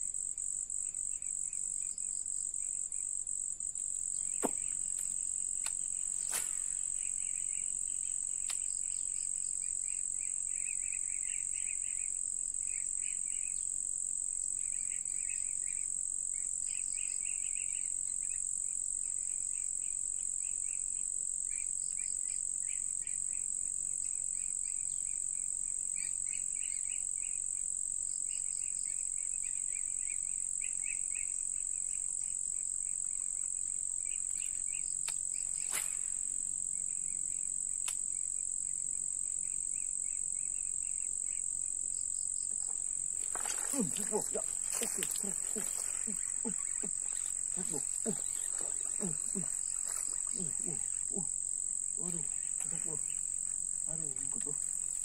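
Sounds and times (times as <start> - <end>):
insects droning high-pitched: 0.0 - 55.0
pulsed chirping trills: 42.6 - 55.0.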